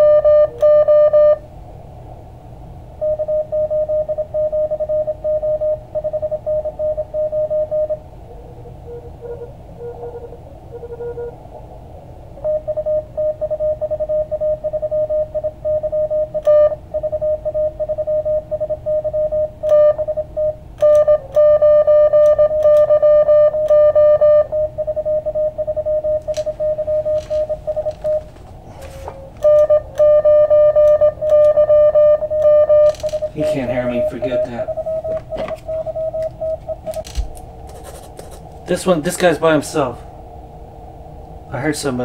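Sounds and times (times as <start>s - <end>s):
morse code tones: 0.0s - 1.4s, 3.0s - 11.5s, 12.3s - 40.1s
faint morse signals: 0.0s - 1.5s, 3.0s - 11.7s, 12.3s - 42.0s
radio band noise: 33.2s - 36.0s.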